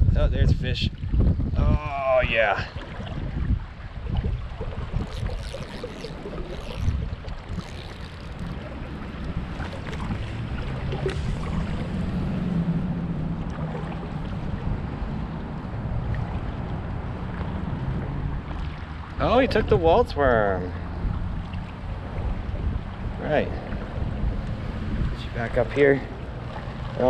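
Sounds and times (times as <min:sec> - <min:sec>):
wind buffeting microphone: 0:00.0 - 0:27.0
river water rushing: 0:05.0 - 0:19.9.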